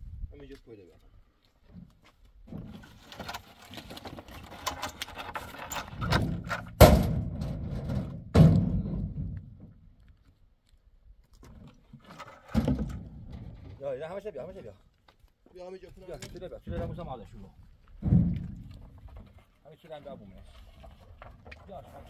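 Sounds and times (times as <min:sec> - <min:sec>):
heavy thuds with low rumble: 0:06.3 - 0:09.8.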